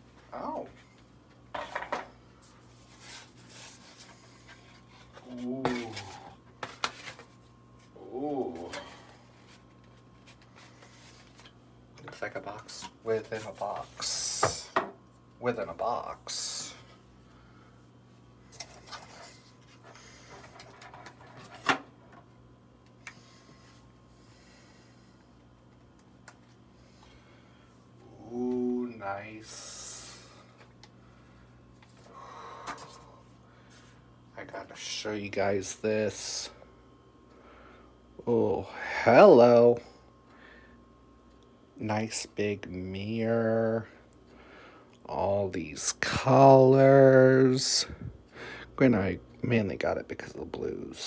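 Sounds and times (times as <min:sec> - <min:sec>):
short hummed voice sound: 0:05.2 - 0:06.4.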